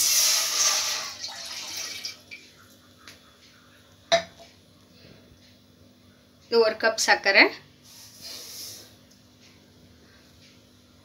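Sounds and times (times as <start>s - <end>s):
water pouring into metal pot: 0.0s - 2.3s.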